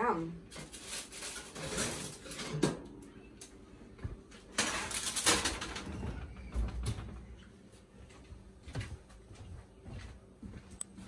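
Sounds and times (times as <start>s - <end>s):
parchment paper rustling: 0.5s - 2.4s
metal baking sheet scraping: 0.5s - 2.7s.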